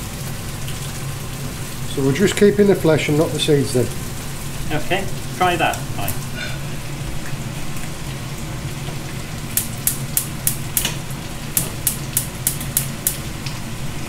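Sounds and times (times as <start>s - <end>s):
vegetables sizzling in a pan: 0.0s - 14.0s
sharp clicks: 11.6s - 13.2s.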